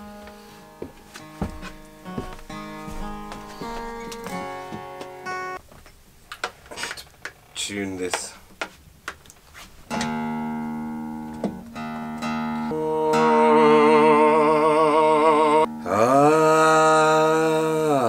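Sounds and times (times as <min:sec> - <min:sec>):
acoustic guitar being tuned: 0:00.0 - 0:05.6, 0:09.9 - 0:18.0.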